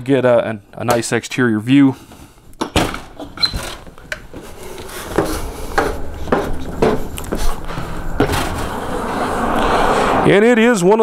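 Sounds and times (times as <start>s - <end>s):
low traffic rumble: 3.0s - 11.0s
footsteps: 3.1s - 10.2s.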